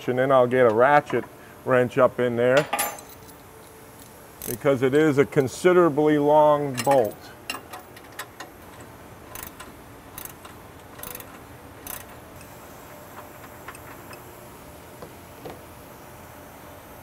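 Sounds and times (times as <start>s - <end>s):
ratchet wrench clicking: 6.8s - 12.5s.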